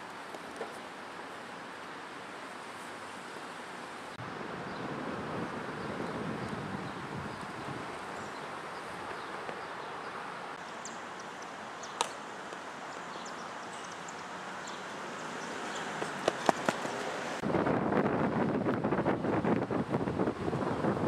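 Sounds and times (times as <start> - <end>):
wind noise on microphone: 4.2 - 9.7, 16.1 - 21.0
quick footfalls: 15.9 - 17.1.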